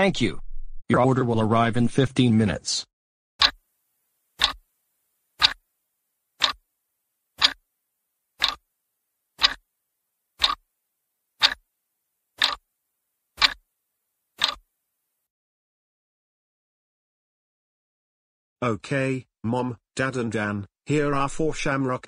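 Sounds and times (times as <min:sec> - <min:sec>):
clock ticking: 0:03.4 - 0:03.6, 0:04.4 - 0:04.6, 0:05.4 - 0:05.6, 0:06.4 - 0:06.6, 0:07.4 - 0:07.6, 0:08.4 - 0:08.6, 0:09.4 - 0:09.6, 0:10.4 - 0:10.6, 0:11.4 - 0:11.6, 0:12.4 - 0:12.6, 0:13.4 - 0:13.6, 0:14.4 - 0:14.6.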